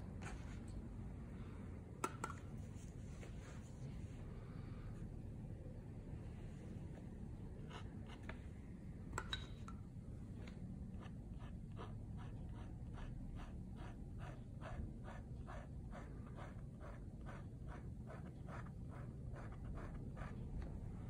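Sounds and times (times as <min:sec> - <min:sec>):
pen scratching on paper: 0:10.8 - 0:21.0.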